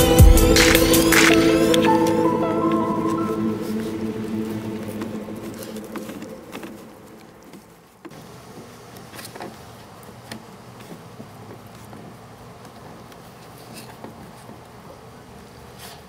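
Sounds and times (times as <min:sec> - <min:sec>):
music: 0:00.0 - 0:07.3
low steady hum: 0:00.0 - 0:08.4.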